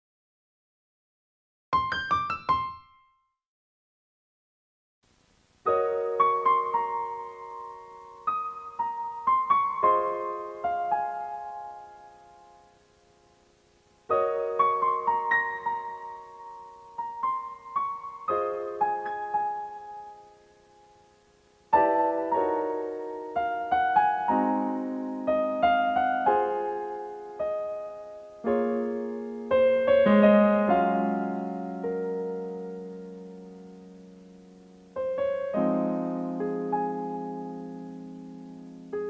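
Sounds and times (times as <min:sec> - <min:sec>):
slow solo piano melody: 0:01.8 - 0:03.1, 0:05.6 - 0:13.1, 0:14.0 - 0:39.0.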